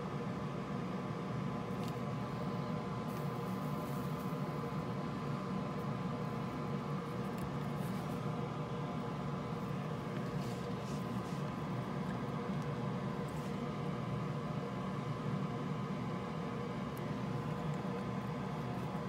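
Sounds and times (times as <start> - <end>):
mechanical hum and hiss: 0.0 - 19.0
thin constant whine: 0.0 - 19.0.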